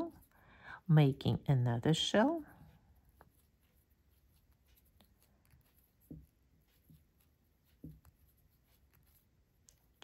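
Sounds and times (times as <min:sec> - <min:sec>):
crochet hook ticks and rustles: 0:02.3 - 0:10.0.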